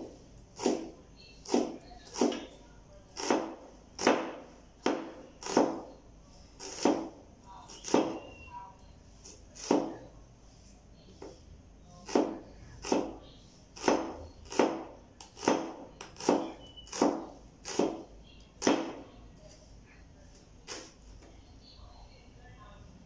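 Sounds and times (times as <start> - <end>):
cleaver chopping on cutting board: 0.6 - 0.9, 3.2 - 5.9, 6.6 - 7.1, 7.8 - 8.2, 9.6 - 10.0, 12.1 - 13.2, 13.8 - 18.0, 18.6 - 19.0.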